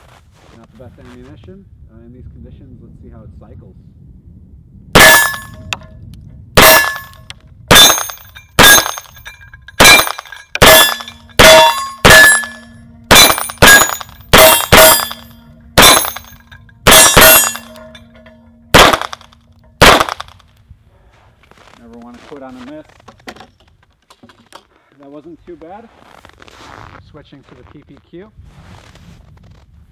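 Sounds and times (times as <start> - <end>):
pistol shots: 5.0 - 5.6, 6.6 - 7.1, 7.7 - 9.2, 9.8 - 18.0, 18.7 - 20.4
steel targets clanging: 5.0 - 5.8, 6.6 - 20.4
low lingering ring: 5.0 - 6.0, 6.6 - 20.4.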